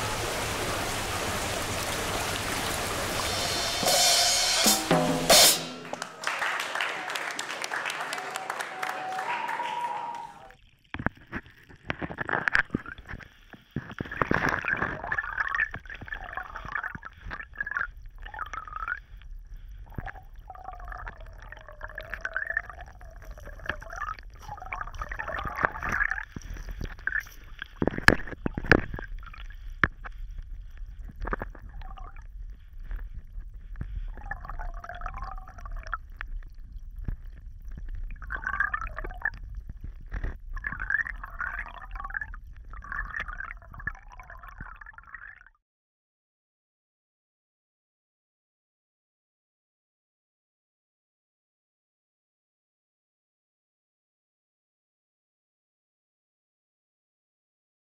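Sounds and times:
creek water gurgling: 0:00.0 - 0:04.9, 0:19.8 - 0:33.3, 0:34.0 - 0:45.3.

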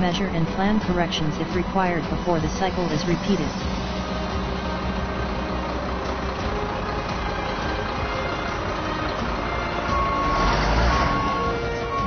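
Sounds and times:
heavy machine engine rumbling: 0:00.0 - 0:12.0
reversing alarm beeping: 0:09.4 - 0:12.0.

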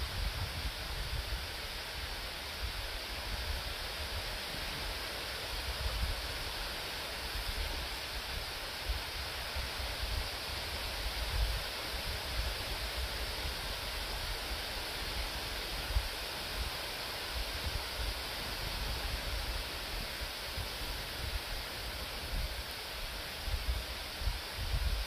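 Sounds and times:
wind buffeting microphone: 0:00.0 - 0:01.7, 0:23.4 - 0:25.0
wind through leaves: 0:00.0 - 0:25.0.

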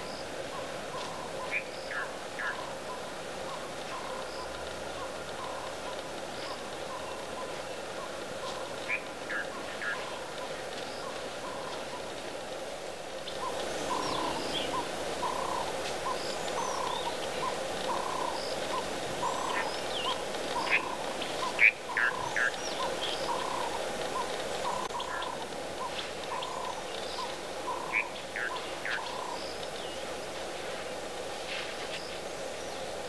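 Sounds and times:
birds chirping: 0:00.0 - 0:33.0
steady background hum: 0:00.0 - 0:33.0.

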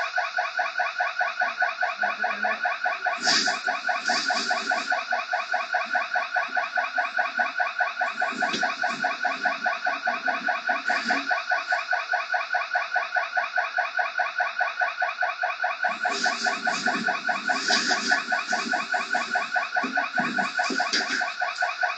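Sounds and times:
electronic security alarm pulsing: 0:00.0 - 0:21.9
faint knocks and rustles: 0:16.0 - 0:21.7.

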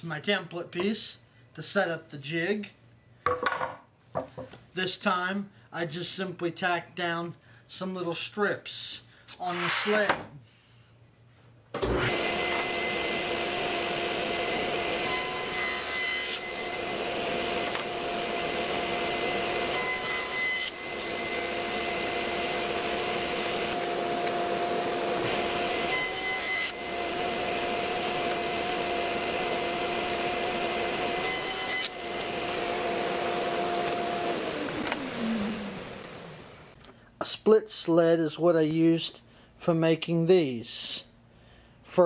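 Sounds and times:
table saw whining: 0:11.8 - 0:36.8
saw blade cutting wood: 0:13.9 - 0:24.6, 0:25.2 - 0:32.8.

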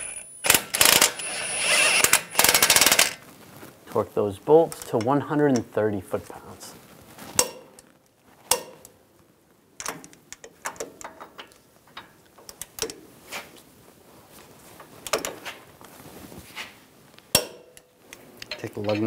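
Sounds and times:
torque wrench metallic clicks: 0:00.0 - 0:03.2.

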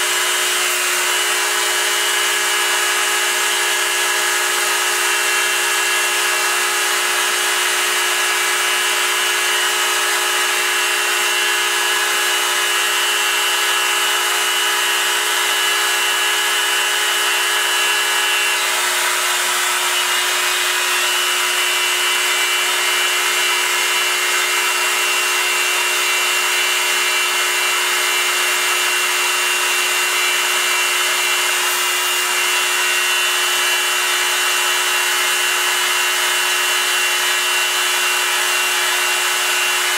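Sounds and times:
milling machine spindle whine: 0:00.0 - 0:39.9.

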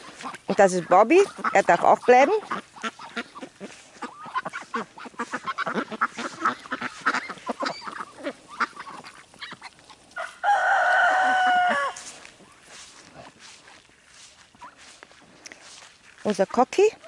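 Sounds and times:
ducks calling softly: 0:00.0 - 0:17.0
rooster crowing: 0:10.2 - 0:12.2.

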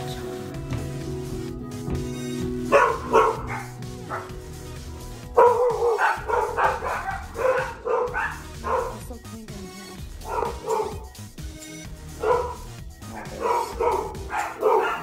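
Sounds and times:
small dog barking: 0:02.7 - 0:04.3, 0:05.4 - 0:09.0, 0:10.2 - 0:11.0, 0:12.2 - 0:15.0.

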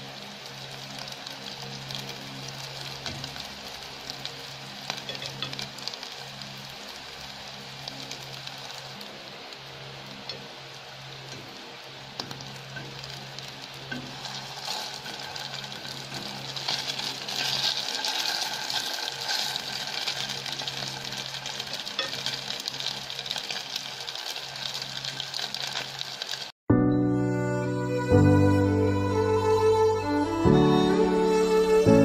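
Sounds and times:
fish sizzling in hot oil: 0:00.0 - 0:26.6
spatula moving food in pan: 0:12.7 - 0:26.4.

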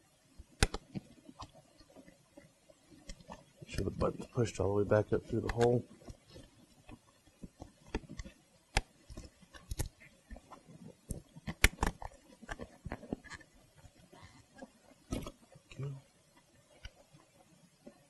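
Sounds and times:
small clicks and taps: 0:00.4 - 0:03.9, 0:05.4 - 0:15.4.

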